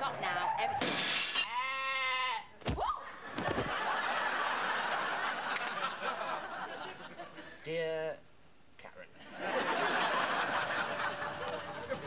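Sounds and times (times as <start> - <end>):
woman shouting: 1.5 - 3.1
studio audience laughing: 3.2 - 7.6, 9.2 - 12.0.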